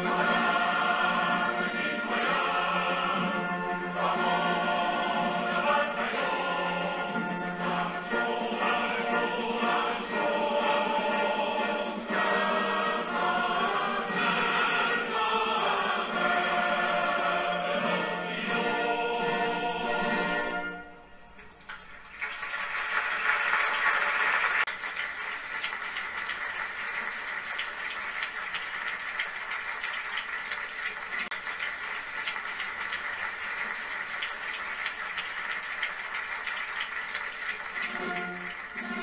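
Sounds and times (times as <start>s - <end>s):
crowd applause on television: 0.0s - 11.6s, 21.6s - 39.0s.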